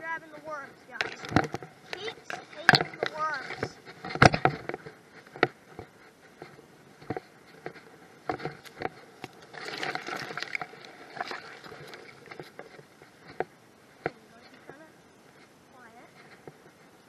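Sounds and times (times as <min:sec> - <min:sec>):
grass rustling against camera: 0:00.0 - 0:17.0.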